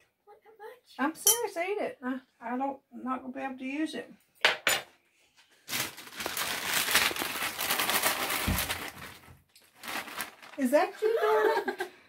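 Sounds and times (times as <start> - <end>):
plastic bag crinkling: 5.6 - 11.1.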